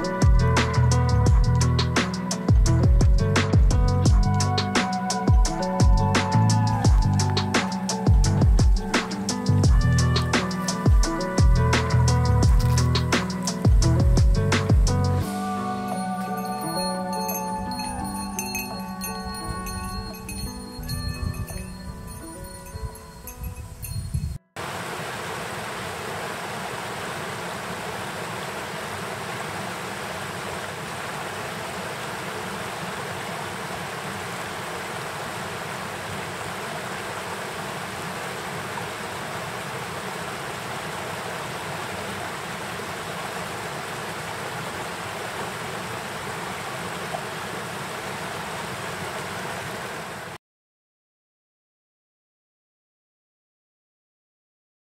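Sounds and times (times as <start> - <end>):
stream rushing over rocks: 24.6 - 50.4.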